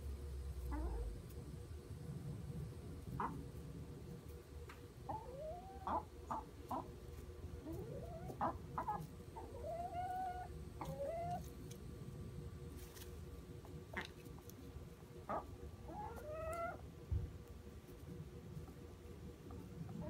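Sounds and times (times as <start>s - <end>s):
hens clucking: 0.6s - 1.4s, 3.0s - 11.8s, 13.6s - 17.2s
hens drawn-out calls: 15.3s - 16.8s.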